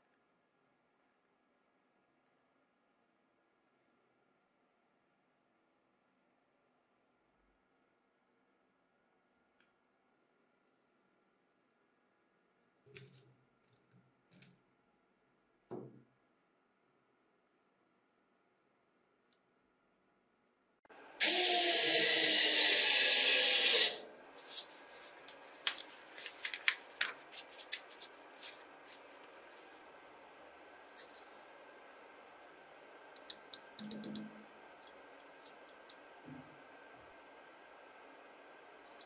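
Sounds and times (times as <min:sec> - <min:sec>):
electric drill running: 0:21.2 - 0:24.0
paper rustling: 0:24.4 - 0:29.9.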